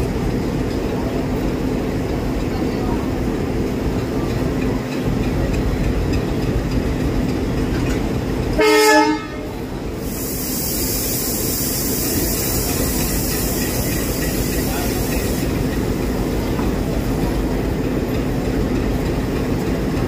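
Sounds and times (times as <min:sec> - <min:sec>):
diesel locomotive idling: 0:00.0 - 0:20.0
train horn blast: 0:08.6 - 0:09.6
air hissing: 0:09.9 - 0:16.4.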